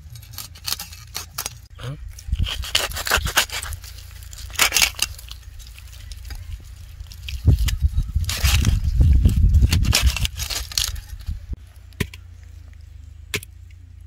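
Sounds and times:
hands scraping fish scales: 2.2 - 11.3.

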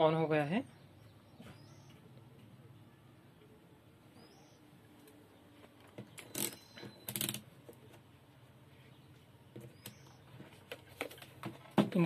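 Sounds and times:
faint background noise: 0.0 - 12.0.

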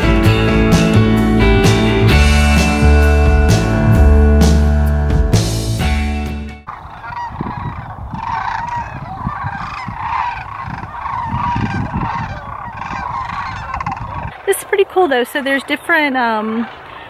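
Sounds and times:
rock music: 0.0 - 6.7
wind rumble on microphone: 6.7 - 14.7
cranes and geese calling: 6.7 - 17.0.

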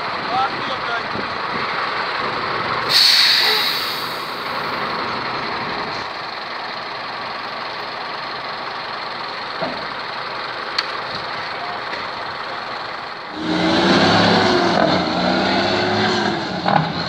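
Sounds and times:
truck engine running: 0.0 - 15.3
compressed air hiss: 2.9 - 4.5.

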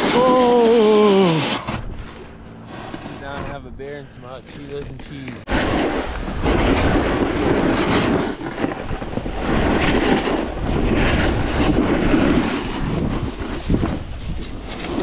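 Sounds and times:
snowboard scraping over snow: 0.0 - 15.0
wind rushing over microphone: 5.4 - 15.0.

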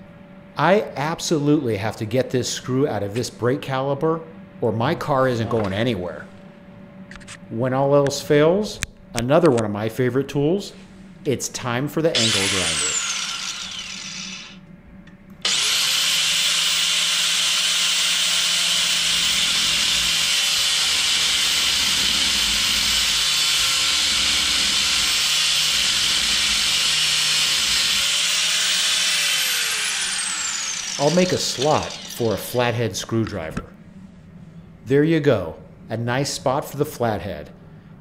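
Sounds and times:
angle grinder grinding metal: 12.2 - 14.6, 15.4 - 33.2.

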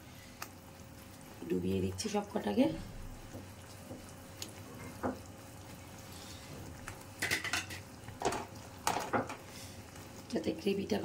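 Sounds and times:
spoon clinking and scraping pan: 7.2 - 9.4.

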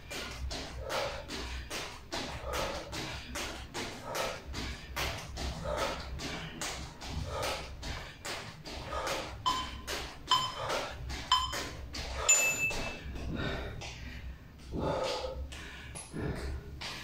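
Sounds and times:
long high timer beep: 9.5 - 10.6, 11.3 - 11.6
timer short beeps: 9.5 - 10.6, 11.3 - 11.6.

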